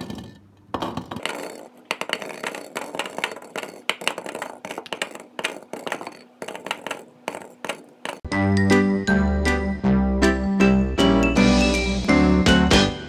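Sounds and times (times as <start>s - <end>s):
rubber balls clattering in plastic bowl: 0.0s - 8.3s.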